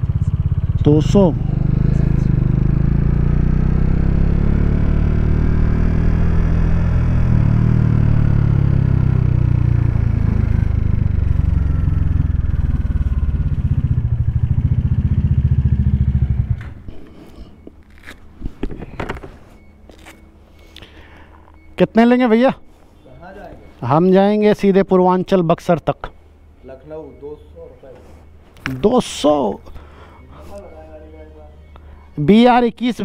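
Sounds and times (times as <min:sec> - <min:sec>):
motorcycle engine running: 0:00.0 - 0:16.9.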